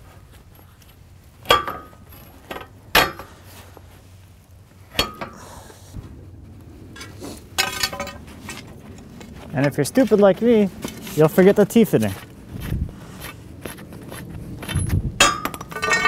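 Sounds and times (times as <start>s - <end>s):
metal pipe clinking on bed frame: 1.4s - 3.4s, 4.9s - 5.4s, 15.2s - 16.0s.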